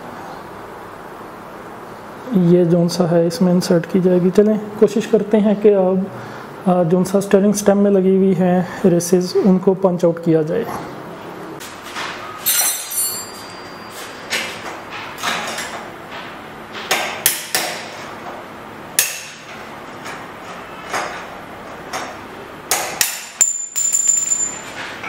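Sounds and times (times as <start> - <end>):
high metallic ring: 12.4 - 14.3, 23.4 - 25.0
hammer striking metal punch: 19.0 - 19.4.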